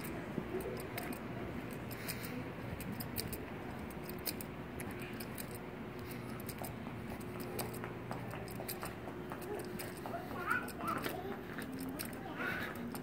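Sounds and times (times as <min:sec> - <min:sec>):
light irregular ticks: 0:00.0 - 0:13.0
low mall background noise: 0:00.0 - 0:13.0.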